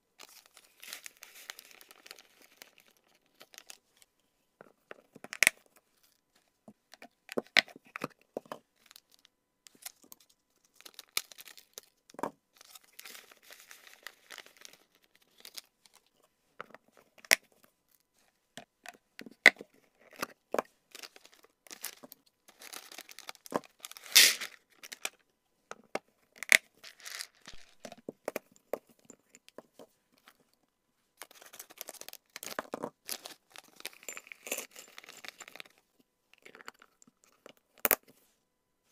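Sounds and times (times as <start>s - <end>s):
plastic pouches crinkling: 0.2s - 3.8s, 12.6s - 15.7s, 20.9s - 25.2s, 31.2s - 35.8s
plastic pouch tearing open: 22.5s - 24.6s.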